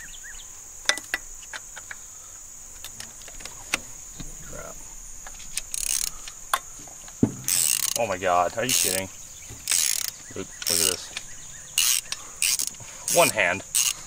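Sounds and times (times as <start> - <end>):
insects droning: 0.0 - 14.0
hand tools clicking and knocking: 0.8 - 2.0, 5.2 - 14.0.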